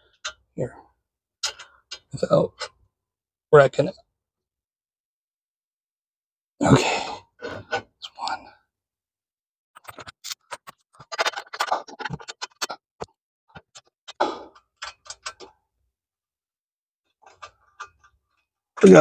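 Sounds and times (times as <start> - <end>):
small metallic clicks and knocks: 0.1 - 0.5, 1.4 - 2.8, 9.8 - 15.6, 17.2 - 19.0.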